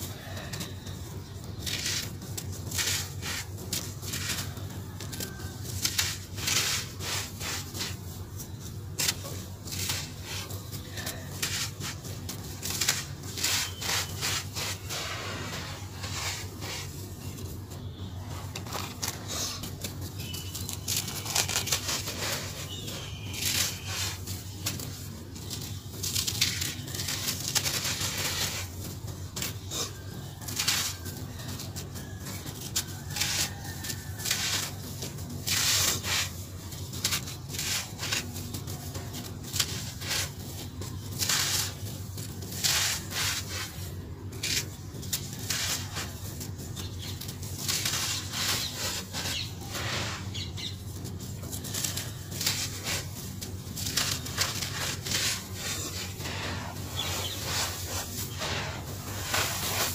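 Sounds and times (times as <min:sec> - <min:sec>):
gritty crackling of powder clumps: 0:00.0 - 0:59.9
powder hissing onto pile: 0:53.8 - 0:59.9.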